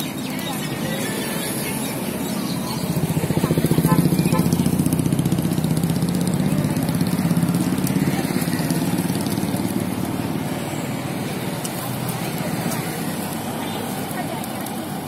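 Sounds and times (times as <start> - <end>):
motorcycle engine passing: 2.3 - 13.4.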